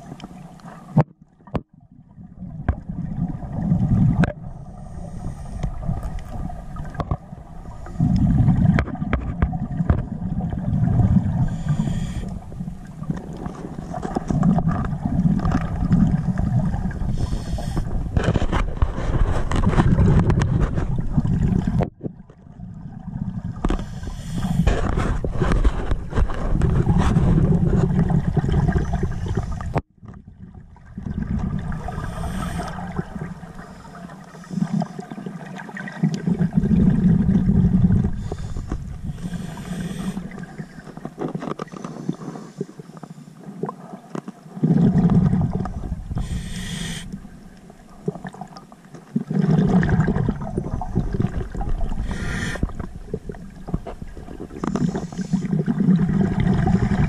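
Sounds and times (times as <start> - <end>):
exhaust bubbles gurgling: 1.8 - 40.9, 44.6 - 57.0
regulator inhale hiss: 4.5 - 5.8, 11.4 - 12.5, 17.1 - 18.0, 23.7 - 24.7, 31.9 - 35.0, 38.1 - 41.0, 46.1 - 47.2, 52.0 - 52.9, 54.7 - 55.6.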